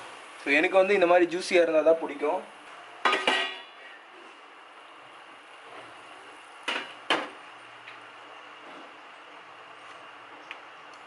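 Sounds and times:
steel plate clattering on stove: 0:03.0 - 0:03.7.

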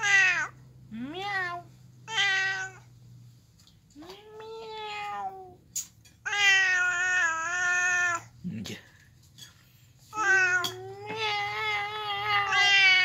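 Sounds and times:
cat meowing: 0:00.0 - 0:02.9, 0:04.1 - 0:05.6, 0:06.2 - 0:08.3, 0:10.1 - 0:13.0.

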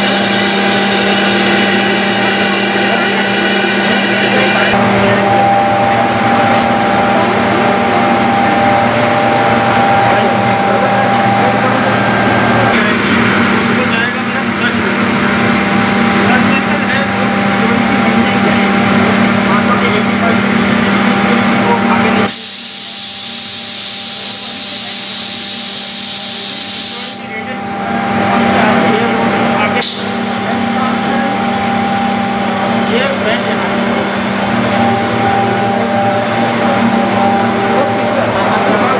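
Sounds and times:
low machine drone: 0:00.0 - 0:22.4, 0:27.1 - 0:38.9
high steady machine tone: 0:00.0 - 0:38.9
loud gas venting hiss: 0:22.3 - 0:27.3.

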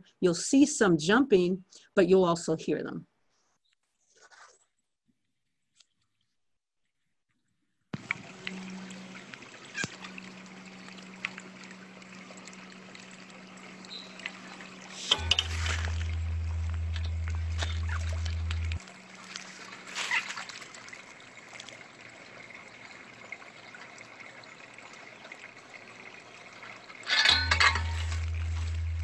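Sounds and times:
frogs splashing into water: 0:08.0 - 0:22.0
rake swishing through pond water: 0:09.2 - 0:11.6, 0:13.9 - 0:21.8, 0:27.0 - 0:29.0.

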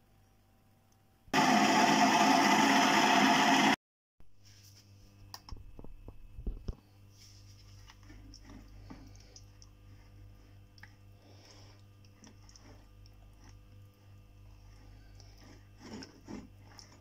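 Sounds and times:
wet grinder running: 0:01.3 - 0:03.8, 0:11.2 - 0:17.0
low steady hum: 0:04.3 - 0:17.0
batter squelching in a plastic bowl: 0:07.1 - 0:17.0.

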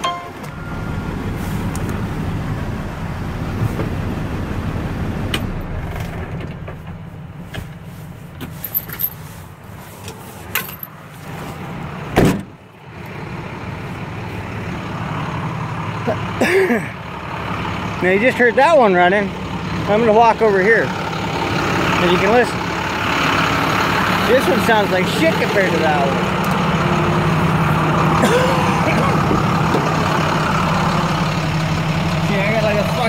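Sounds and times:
truck engine idling: 0:00.0 - 0:33.0
cab door slamming: 0:12.2 - 0:12.6.

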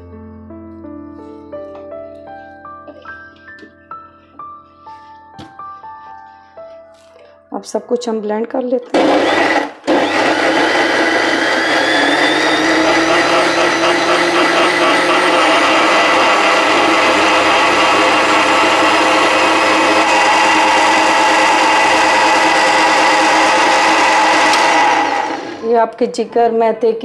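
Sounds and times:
electric blender running: 0:08.9 - 0:25.7.

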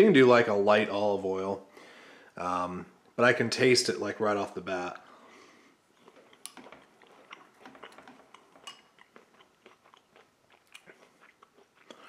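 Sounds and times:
person chewing crunchy food: 0:05.9 - 0:12.0.

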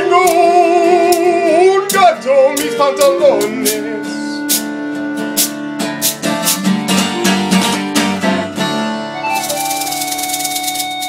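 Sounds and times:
acoustic guitar strumming: 0:00.0 - 0:11.0
can shaker rattling: 0:09.3 - 0:11.0.

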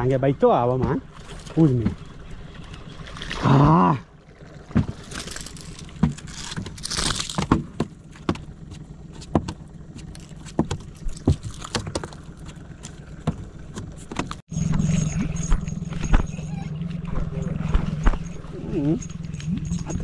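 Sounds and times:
clicks and knocks of gear: 0:04.7 - 0:20.0.

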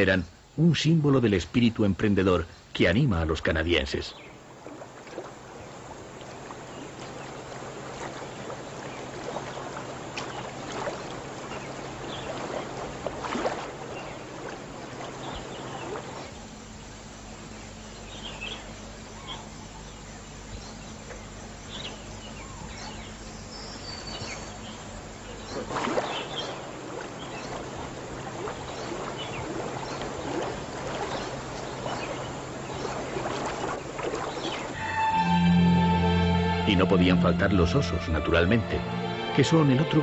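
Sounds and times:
water splashing and sloshing: 0:02.0 - 0:18.6, 0:24.0 - 0:35.3.

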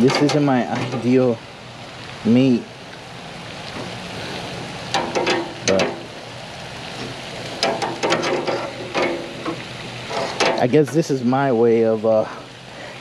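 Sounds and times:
metal tongs scraping a grate: 0:00.0 - 0:01.1, 0:04.9 - 0:06.1, 0:07.6 - 0:10.6
meat sizzling on a grill: 0:00.0 - 0:13.0.

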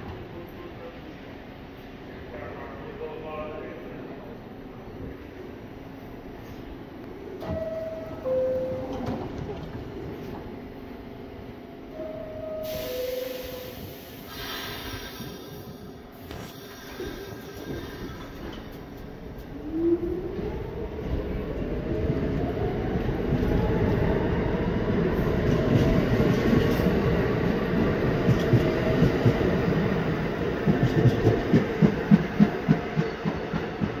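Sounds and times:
rumble of wheels on rail: 0:00.0 - 0:34.0
wheels clickety-clack over rail joints: 0:28.2 - 0:29.6, 0:30.6 - 0:34.0.

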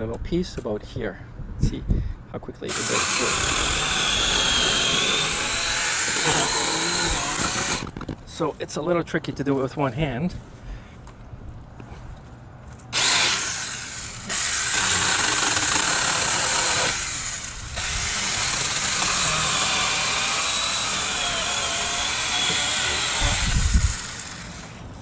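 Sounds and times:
mini chainsaw cutting wood: 0:02.7 - 0:08.0, 0:12.9 - 0:24.9.

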